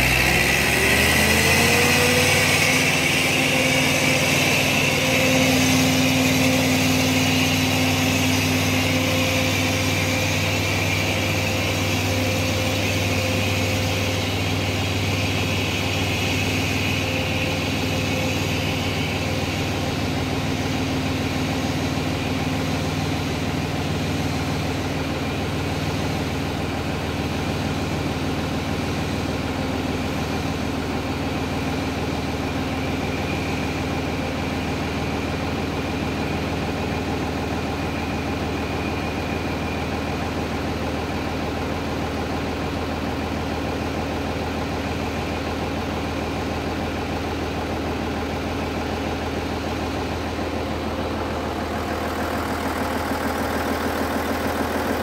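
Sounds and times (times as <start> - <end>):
faint high whine: 0.0 - 28.7
excavator diesel engine running: 0.0 - 55.0.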